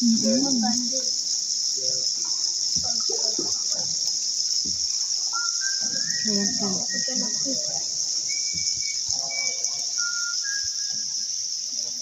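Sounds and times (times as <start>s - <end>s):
people talking indistinctly: 0.0s - 4.5s, 5.4s - 11.1s
high-pitched hiss: 0.0s - 12.0s
thin whistle-like tone: 4.9s - 12.0s.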